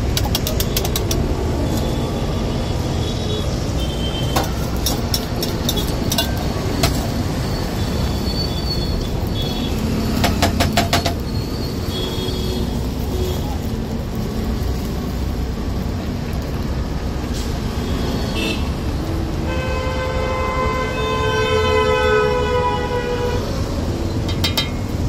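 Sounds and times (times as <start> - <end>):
sharp clicks: 0.0 - 1.3
eggs frying on a griddle: 0.0 - 1.8, 3.7 - 19.5.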